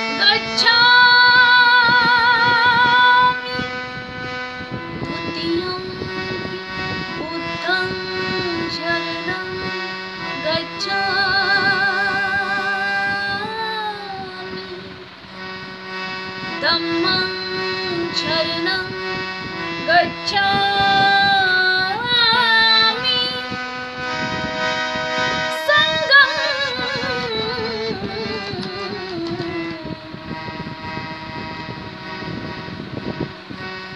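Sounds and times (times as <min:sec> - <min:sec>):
woman singing a devotional hymn: 0:00.1 - 0:03.7, 0:10.4 - 0:14.8, 0:16.6 - 0:18.9, 0:25.6 - 0:30.0.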